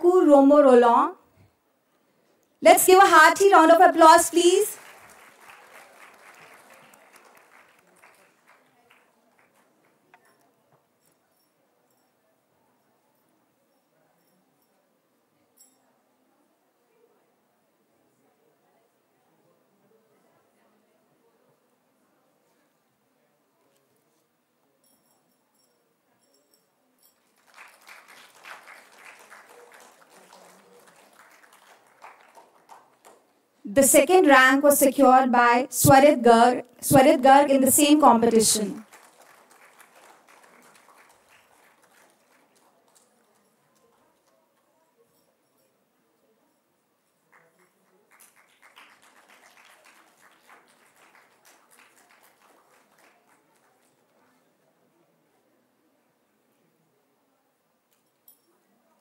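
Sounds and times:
audience applauding: 0:04.3 - 0:10.2, 0:27.3 - 0:33.3, 0:38.6 - 0:44.3, 0:47.3 - 0:54.2.

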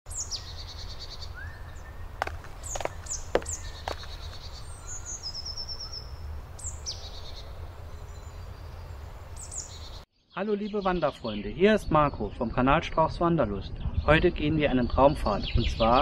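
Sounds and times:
birds singing: 0:00.1 - 0:16.0.

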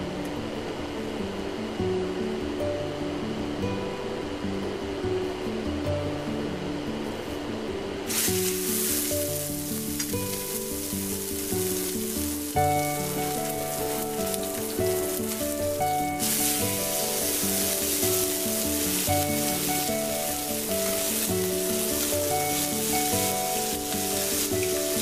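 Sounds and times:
background music: 0:00.0 - 0:25.0
steak sizzling in a pan: 0:08.1 - 0:25.0.

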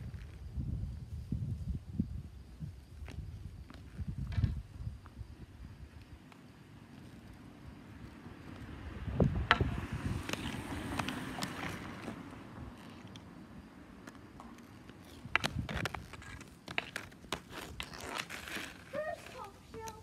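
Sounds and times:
inline skate wheels on concrete: 0:00.0 - 0:20.0
hockey stick and ball clicks: 0:09.5 - 0:13.3, 0:14.0 - 0:20.0.

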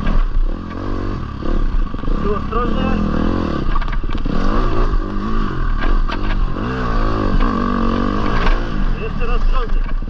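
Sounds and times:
dirt bike engine revving: 0:00.0 - 0:10.0
bike knocks and clatter: 0:03.6 - 0:04.4.

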